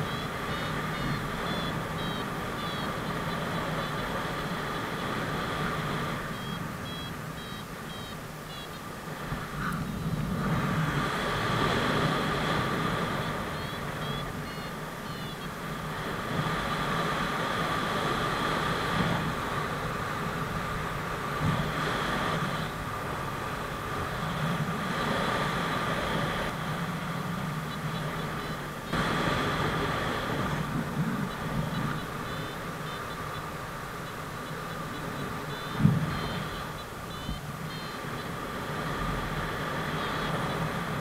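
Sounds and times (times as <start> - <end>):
variometer tone and beeps: 0.0 - 8.9, 11.6 - 15.6, 21.4 - 22.8, 24.0 - 25.6, 27.6 - 29.1, 30.0 - 41.0
wind rushing over microphone: 0.0 - 41.0.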